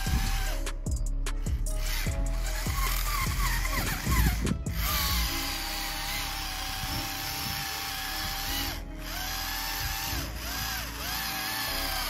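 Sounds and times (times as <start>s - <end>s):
electric motor whining: 0.0s - 12.0s.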